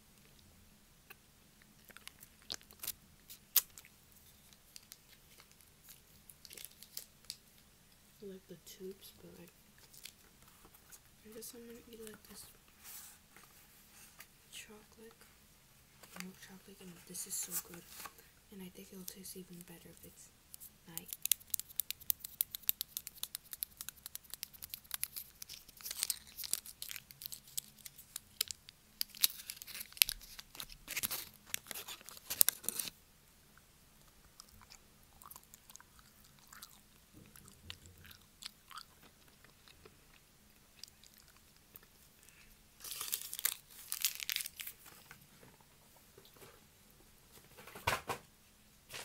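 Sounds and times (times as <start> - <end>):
chewing and crunching chocolate: 1.1 - 7.1, 20.9 - 32.9, 34.0 - 44.8.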